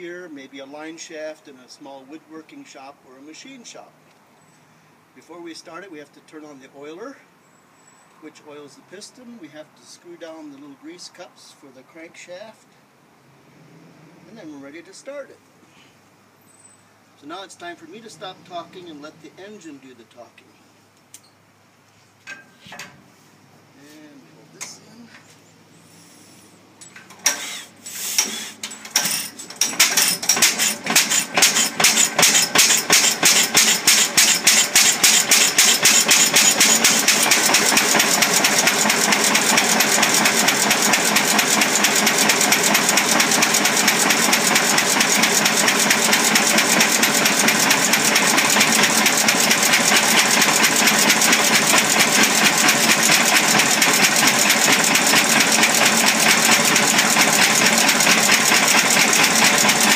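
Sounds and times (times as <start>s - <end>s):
stationary engine starting: 27.2s - 59.9s.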